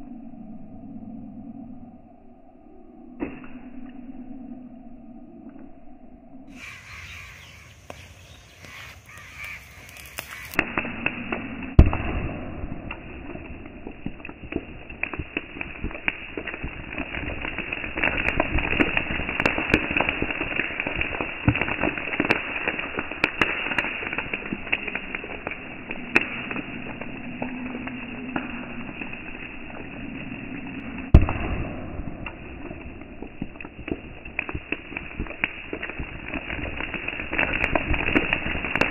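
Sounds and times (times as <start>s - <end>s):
sodium fizzing and popping in water: 10.1s - 38.9s
loud bang: 11.7s - 13.1s.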